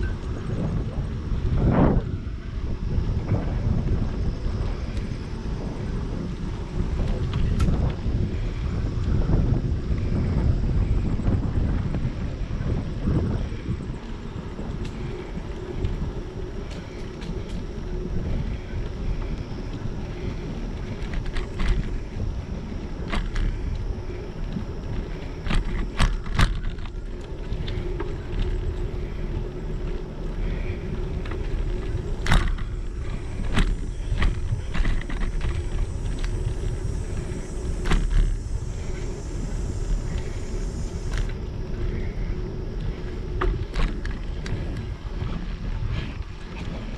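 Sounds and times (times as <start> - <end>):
bicycle tyres rumbling: 0.0 - 46.9
bike rattling over bumps: 0.0 - 46.9
wind on microphone: 0.0 - 46.9.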